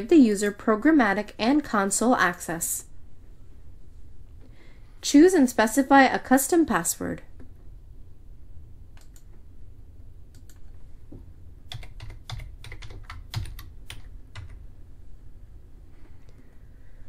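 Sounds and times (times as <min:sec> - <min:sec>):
keyboard keys clicking: 0:11.7 - 0:14.6.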